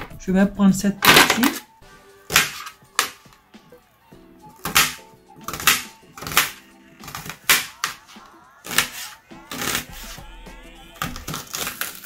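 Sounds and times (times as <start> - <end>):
background music with held notes: 0.0 - 12.0
knife slicing onion: 2.3 - 3.3, 4.6 - 12.0.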